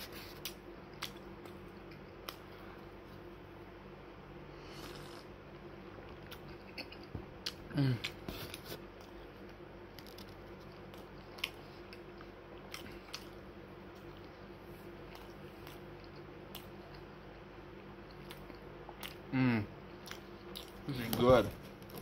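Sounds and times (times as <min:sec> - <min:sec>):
person chewing food: 0:00.0 - 0:03.0, 0:04.6 - 0:21.2
faint steady hum: 0:00.0 - 0:22.0.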